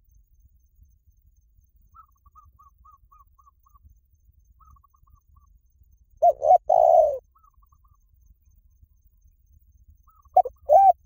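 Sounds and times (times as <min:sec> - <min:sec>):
dove cooing: 0:06.2 - 0:07.6, 0:10.1 - 0:11.0.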